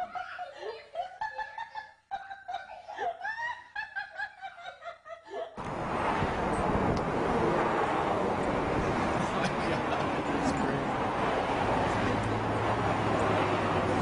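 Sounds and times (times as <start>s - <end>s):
high-pitched laughter: 0.0s - 5.6s
loud rushing noise: 5.6s - 14.0s.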